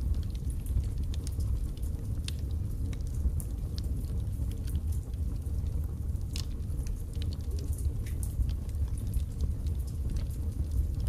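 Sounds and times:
fire rumbling: 0.0 - 11.0
logs crackling and popping: 0.0 - 11.0.

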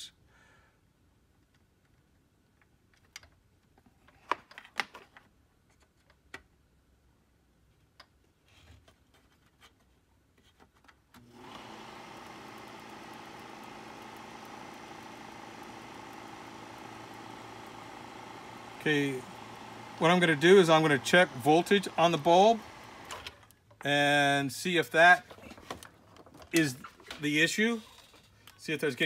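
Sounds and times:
projector fan motor humming: 11.2 - 23.5
fingers clicking and tapping on projector: 11.4 - 18.6.

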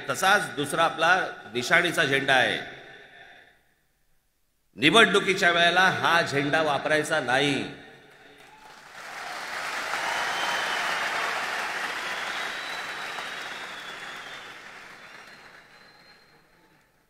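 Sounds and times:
large crowd applauding: 8.4 - 17.0.

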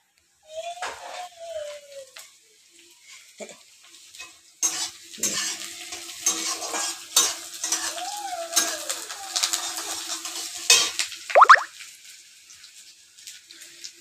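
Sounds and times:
onions sizzling in oil: 0.0 - 14.0
spatula scraping pan: 4.6 - 8.0.

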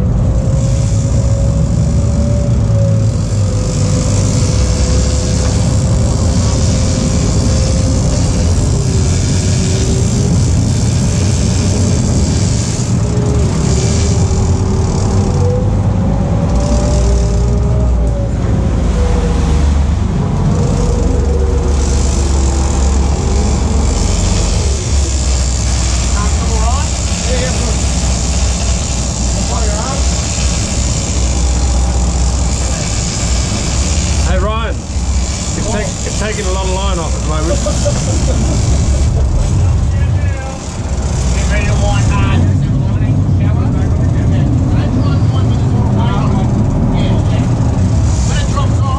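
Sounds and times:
boat engines droning: 0.0 - 48.9
thin steady whine: 0.0 - 48.9
rush of water and wind: 15.7 - 25.4.

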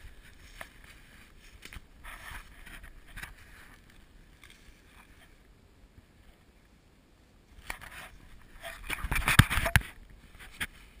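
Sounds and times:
soft rustles: 0.0 - 6.6, 7.5 - 11.0.

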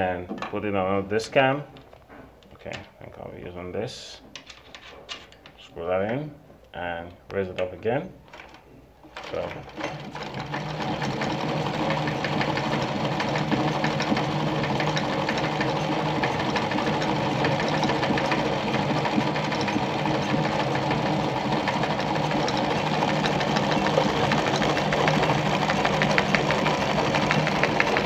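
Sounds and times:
sewing machine stitching: 8.3 - 28.0.

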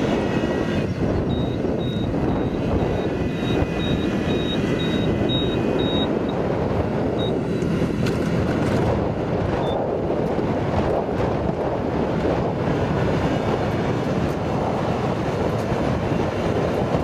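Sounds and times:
engine running steadily: 0.0 - 17.0
high-pitched electronic beep: 1.3 - 6.4.

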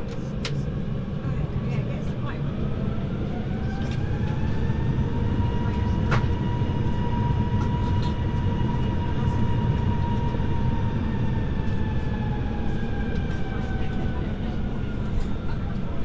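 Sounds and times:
aircraft cabin low rumble: 0.0 - 16.0
faint high engine whine: 0.0 - 16.0.

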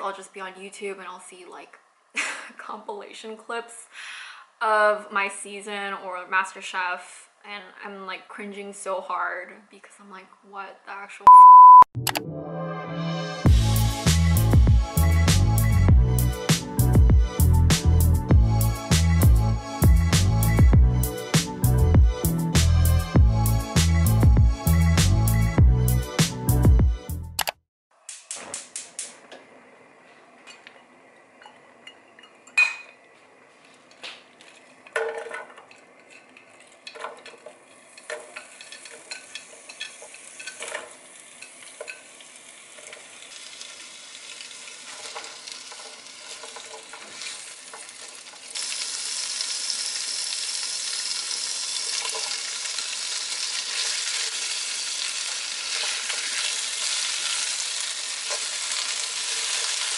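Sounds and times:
food sizzling in a frying pan: 35.7 - 59.9.

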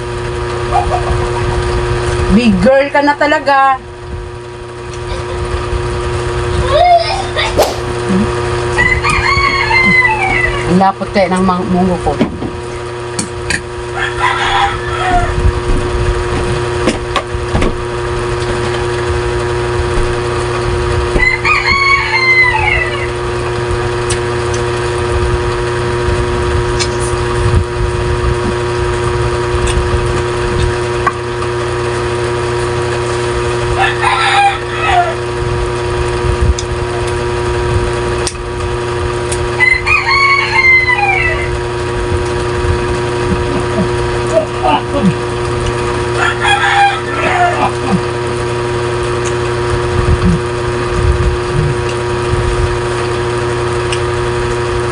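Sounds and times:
steady hum: 7.4 - 8.8, 47.1 - 52.8
rooster crowing: 8.8 - 10.6, 13.9 - 15.4, 21.2 - 23.2, 33.7 - 35.3, 39.6 - 41.7, 46.1 - 48.1.

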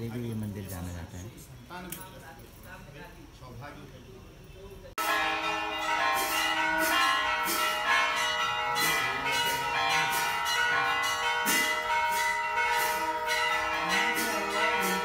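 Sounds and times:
temple bells ringing: 5.0 - 15.0.

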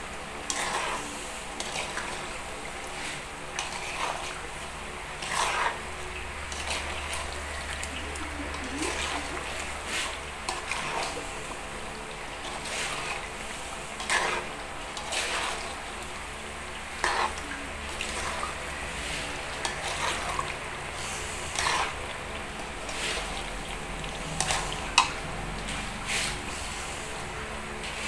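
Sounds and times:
bananas sizzling in hot oil: 0.0 - 28.0
metal spatula scraping a wok: 0.4 - 4.4, 5.2 - 5.8, 6.5 - 7.2, 8.9 - 11.6, 12.4 - 15.7, 16.9 - 22.0, 24.4 - 27.2.

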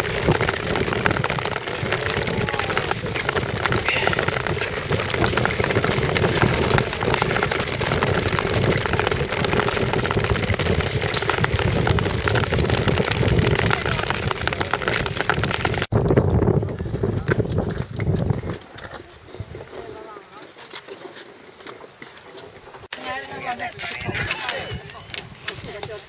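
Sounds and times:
skates scraping over ice: 0.0 - 15.9, 16.6 - 26.0
wind rumbling on microphone: 0.0 - 20.4, 22.5 - 26.0.

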